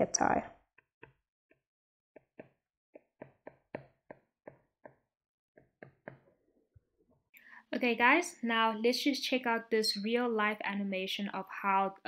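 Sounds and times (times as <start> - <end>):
stylus tapping on tablet screen: 2.2 - 6.4.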